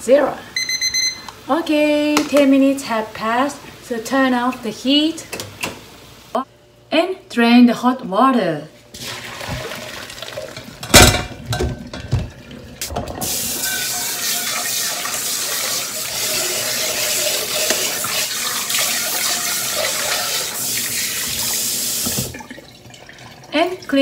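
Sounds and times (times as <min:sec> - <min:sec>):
tap water running into pot: 0:09.0 - 0:23.9
metal pot clanking in sink: 0:10.4 - 0:15.2
pot being scrubbed: 0:13.1 - 0:21.6.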